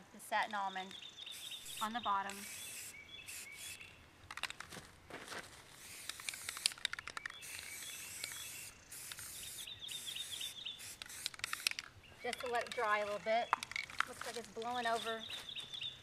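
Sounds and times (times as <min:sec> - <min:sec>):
birds chirping: 0:00.6 - 0:04.2, 0:06.4 - 0:16.0
spray paint can hissing: 0:01.3 - 0:03.9, 0:05.8 - 0:11.8
sharp clicks: 0:06.0 - 0:08.5, 0:11.0 - 0:15.0.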